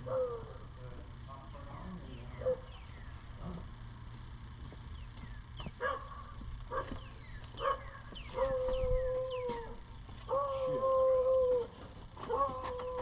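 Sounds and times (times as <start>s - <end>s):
animal whining: 8.3s - 13.0s.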